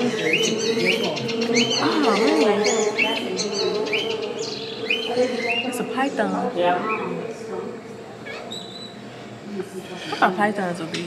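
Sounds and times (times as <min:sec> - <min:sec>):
high chirping calls: 0:00.0 - 0:07.4, 0:08.2 - 0:09.0
faint background voices: 0:00.0 - 0:11.0
steady low hum: 0:00.0 - 0:11.0.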